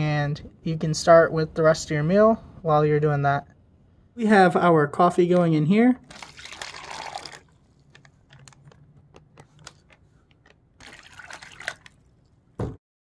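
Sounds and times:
water pouring into plastic bag: 6.0 - 8.6, 10.8 - 12.3
plastic bag crinkling: 6.0 - 12.4.

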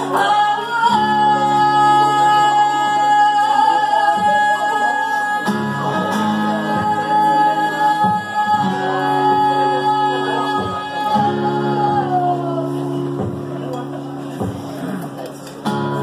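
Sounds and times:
woman singing: 0.0 - 13.7
acoustic guitar chords: 0.0 - 16.0.

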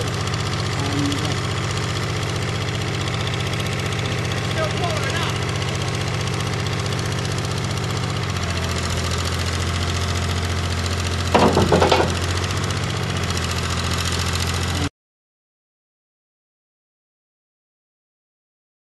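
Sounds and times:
heavy lorry engine running: 0.0 - 14.9
short loud clatter: 11.3 - 12.4.

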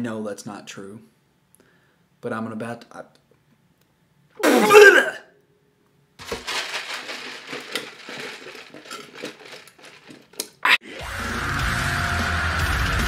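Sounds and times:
foam cup rustling: 6.2 - 10.6.

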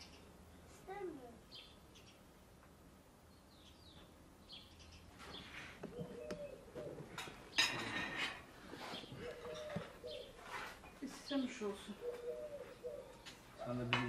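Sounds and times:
small birds chirping: 0.0 - 14.0
longer bird calls: 3.3 - 14.0
spoons clinking on plates: 7.2 - 8.5.

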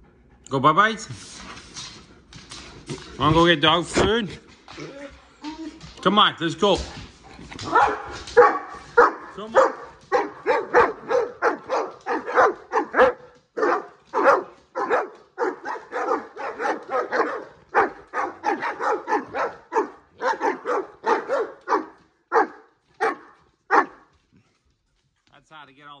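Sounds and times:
dogs barking excitedly: 6.8 - 24.3.

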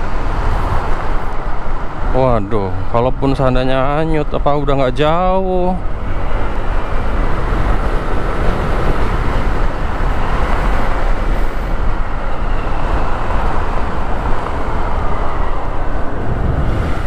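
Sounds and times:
tyres on wet asphalt: 0.0 - 17.0
wind rushing over microphone: 0.0 - 17.0.

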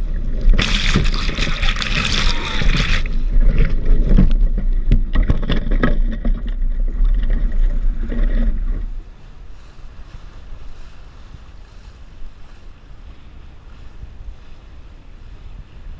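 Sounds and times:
water slapping hull: 0.0 - 9.0
water splashing against hull: 0.0 - 9.2
wind buffeting microphone: 0.0 - 15.9.

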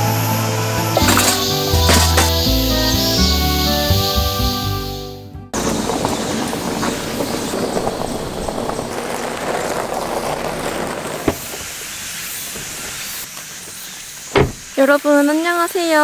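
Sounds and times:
tyres on gravel: 0.8 - 3.4, 5.6 - 14.9.

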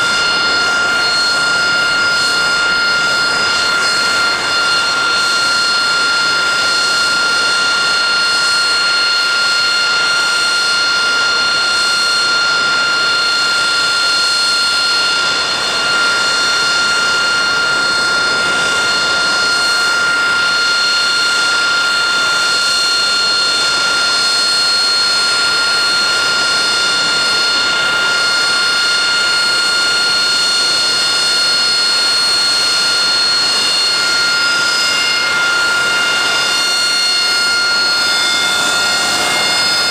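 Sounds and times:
jet engine whine: 0.0 - 39.9
jet noise rush: 33.5 - 39.9.

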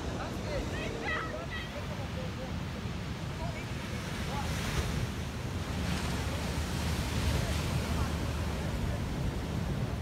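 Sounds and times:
surf breaking on beach: 2.7 - 10.0.

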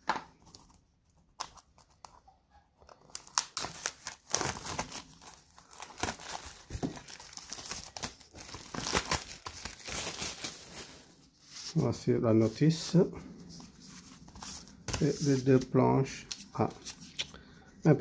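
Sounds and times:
plastic wrap crinkling: 2.9 - 11.8.

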